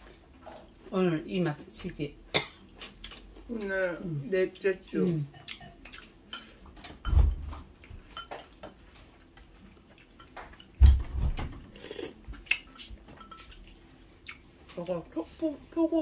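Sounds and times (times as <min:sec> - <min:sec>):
utensils clinking against bowls: 0:08.0 - 0:10.8, 0:11.8 - 0:13.8.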